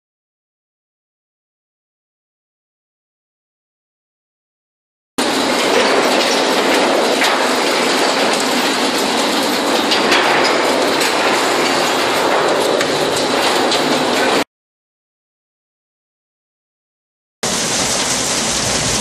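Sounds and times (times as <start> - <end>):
granular material rattling: 5.2 - 14.5
machine running: 5.2 - 14.5.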